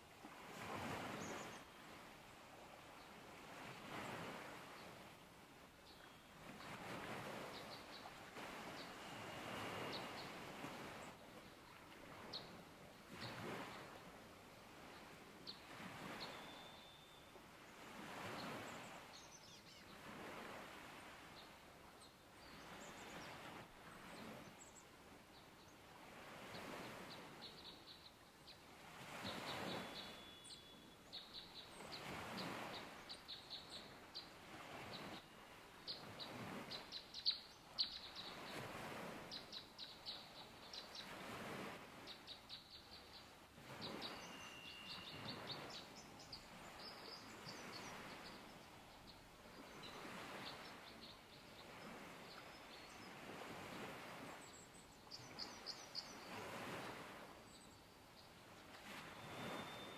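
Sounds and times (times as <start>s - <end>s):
small birds chirping: 54.5s - 56.4s.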